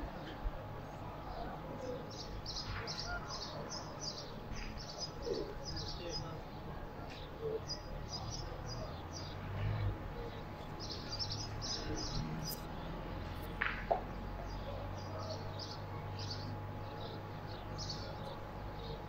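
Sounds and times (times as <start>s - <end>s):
small birds chirping: 0.1s - 19.0s.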